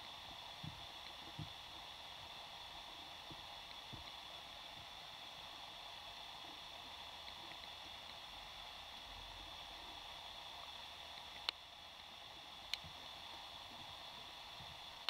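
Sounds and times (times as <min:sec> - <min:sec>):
faint steady underwater hiss: 0:00.0 - 0:15.0.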